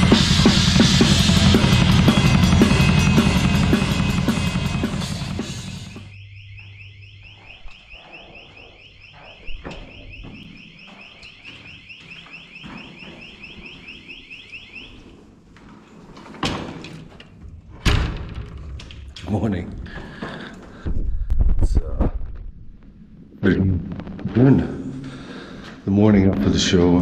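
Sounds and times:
band playing with drum kit: 0.0 - 6.1
electronic alarm chirps: 1.2 - 15.2.

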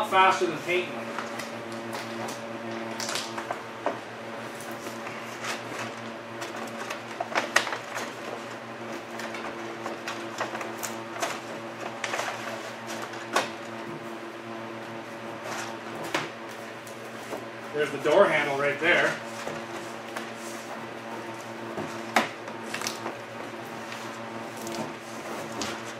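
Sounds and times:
steady hum: 0.0 - 25.9
squeegee scraping vinyl wrap: 15.2 - 25.9.

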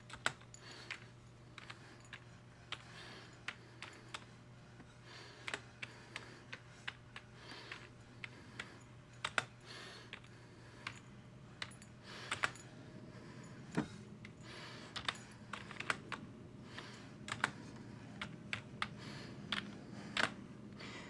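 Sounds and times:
computer keyboard key clicks: 15.0 - 16.2, 17.3 - 17.6.

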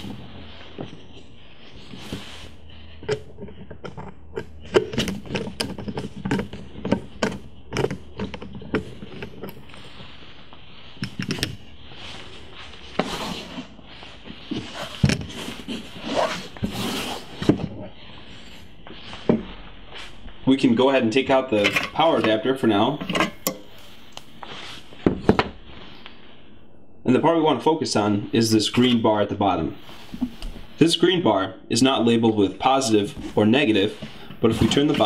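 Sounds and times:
metal scraping: 0.0 - 24.9, 32.6 - 35.0.

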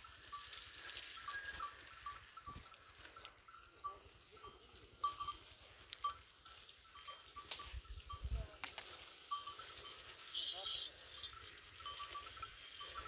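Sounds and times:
camels rustling shrubs: 0.0 - 13.0.

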